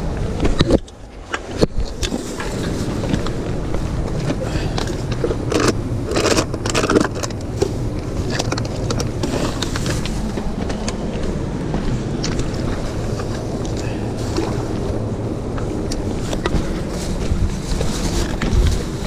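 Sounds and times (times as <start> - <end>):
steady low rumble: 0.0 - 19.0
plastic bag rustling: 1.4 - 19.0.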